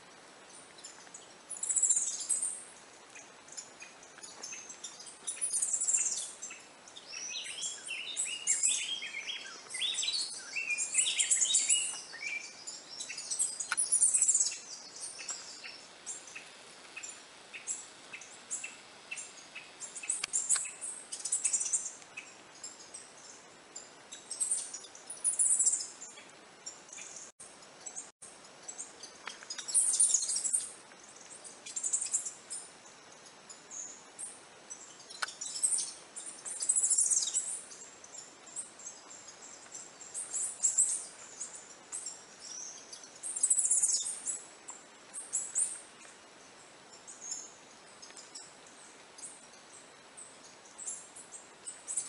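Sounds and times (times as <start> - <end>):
squirrel chirping: 7.2 - 22.9, 34.7 - 44.4.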